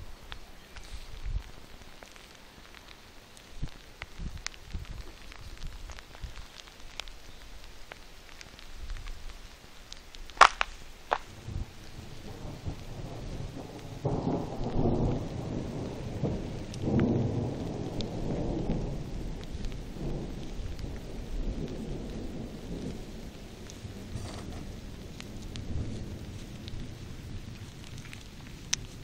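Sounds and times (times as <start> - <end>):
rain falling: 0.0 - 29.0
thunder rumbling: 11.2 - 29.0.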